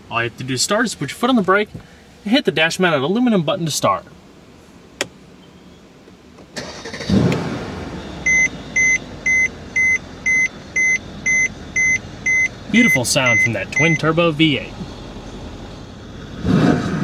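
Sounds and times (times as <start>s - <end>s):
car engine starting and idling: 6.0s - 17.0s
car warning chime beeping: 7.9s - 15.9s.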